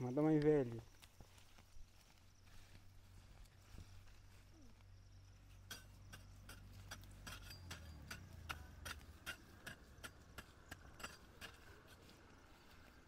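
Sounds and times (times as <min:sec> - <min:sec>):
hand hoes chopping into soil: 0:05.6 - 0:12.1.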